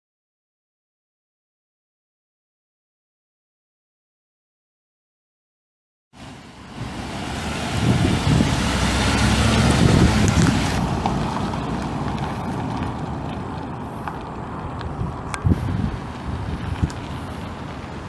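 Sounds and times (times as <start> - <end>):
truck engine running: 6.2 - 18.0.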